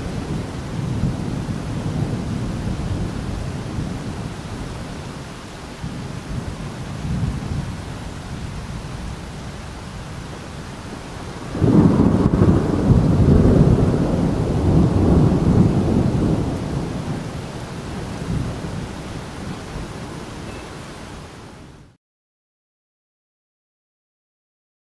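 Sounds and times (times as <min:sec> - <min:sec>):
thunder clap and rumble: 0:00.0 - 0:04.9, 0:05.8 - 0:10.3, 0:11.2 - 0:19.0
rain hiss: 0:00.0 - 0:22.0.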